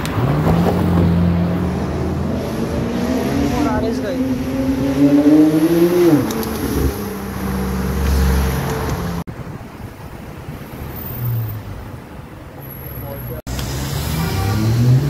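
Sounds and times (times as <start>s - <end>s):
street traffic: 0.0s - 15.0s
tyre and road rush: 0.0s - 15.0s.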